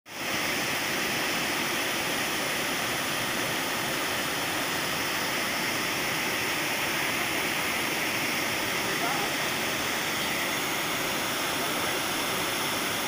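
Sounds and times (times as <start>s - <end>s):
water rushing over weir: 0.1s - 13.0s.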